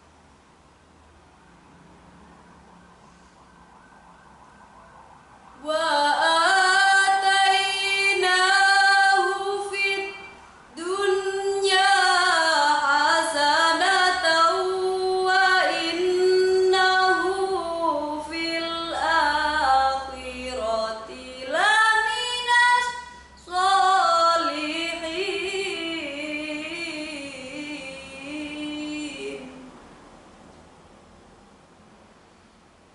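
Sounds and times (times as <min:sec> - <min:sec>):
girl reciting melodically: 0:05.6 - 0:29.7.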